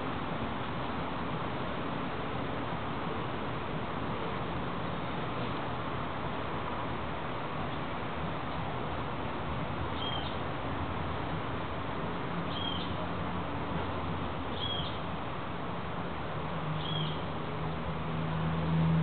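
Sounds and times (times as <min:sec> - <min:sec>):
small bird chirping: 0:10.0 - 0:10.4, 0:12.5 - 0:13.0, 0:14.5 - 0:15.0, 0:16.8 - 0:17.2.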